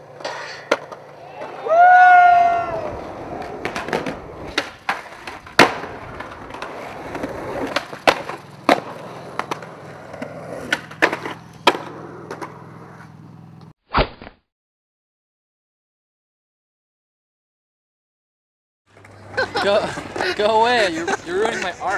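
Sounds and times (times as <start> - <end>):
skateboard popping and landing: 0.0 - 1.6, 2.9 - 13.7
skateboard wheels rolling on concrete: 0.0 - 13.7, 18.9 - 21.9.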